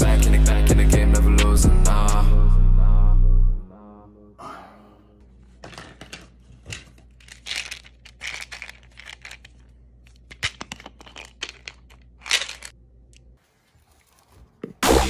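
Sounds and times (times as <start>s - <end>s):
plastic bottle rustling and scraping: 5.4s - 12.7s, 13.4s - 14.8s.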